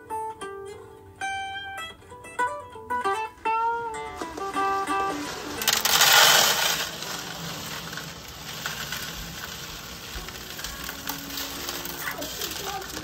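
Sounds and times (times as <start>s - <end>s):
gravel pattering into glass tank: 4.2s - 13.0s.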